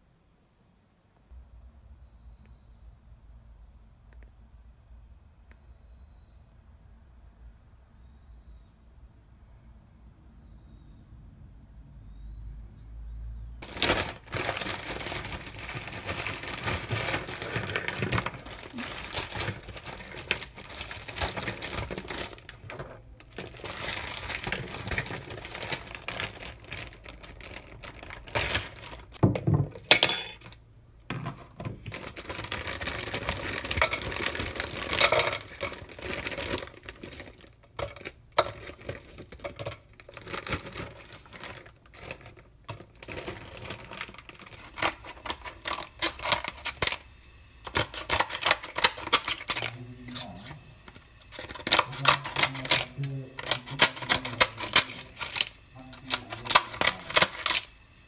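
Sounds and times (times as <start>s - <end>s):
plastic bags rustling: 13.6s - 57.8s.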